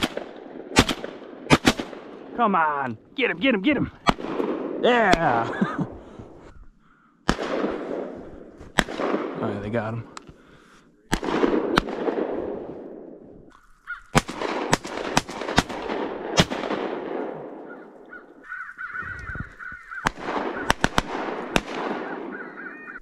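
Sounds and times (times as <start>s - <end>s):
shotgun shots echoing: 0.0s - 2.4s, 4.0s - 6.0s, 7.2s - 10.0s, 11.1s - 13.2s, 14.1s - 18.4s, 19.9s - 23.0s
crows cawing: 13.5s - 14.2s, 17.6s - 23.0s.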